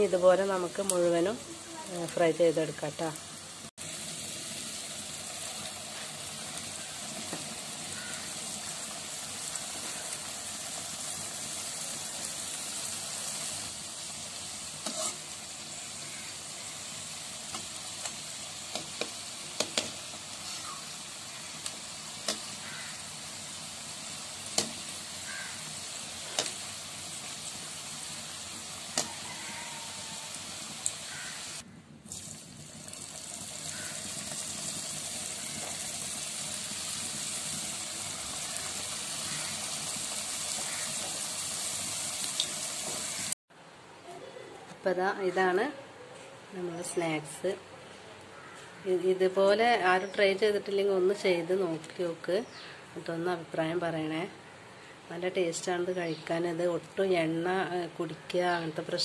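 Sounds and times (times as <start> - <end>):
pastries deep-frying in oil: 0.0 - 43.4.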